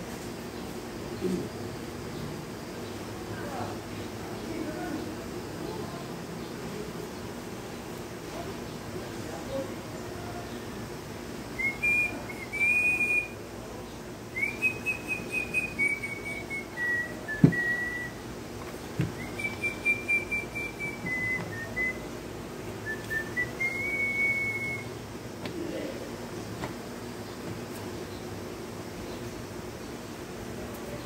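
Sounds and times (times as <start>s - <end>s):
person whistling a tune: 11.6s - 13.3s, 14.4s - 18.2s, 19.2s - 22.0s, 22.9s - 24.9s.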